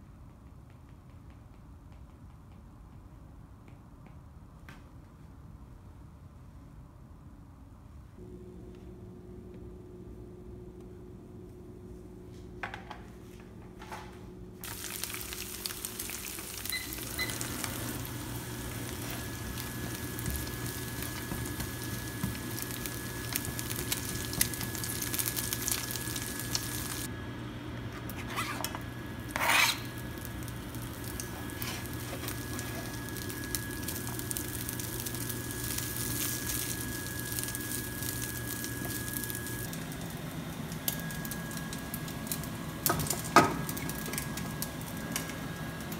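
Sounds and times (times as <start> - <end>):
low hum: 8.1 - 12.6
food frying: 14.6 - 27.1, 29.2 - 45.7
oil sizzling in frying pan: 14.6 - 27.1, 29.3 - 40.1, 40.9 - 45.3.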